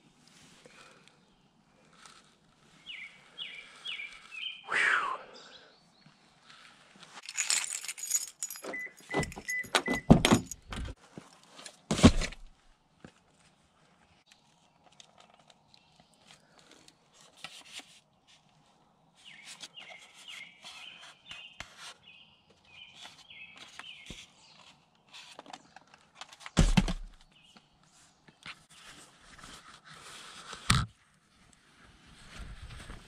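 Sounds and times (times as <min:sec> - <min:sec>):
bird singing: 0:02.8 - 0:06.4, 0:19.2 - 0:24.6
padded gear rustling and clicking: 0:06.5 - 0:12.6.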